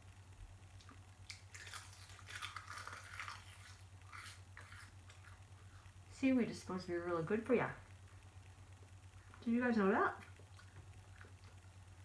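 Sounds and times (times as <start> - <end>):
person chewing crisp snack: 0.8 - 5.9, 10.4 - 11.8.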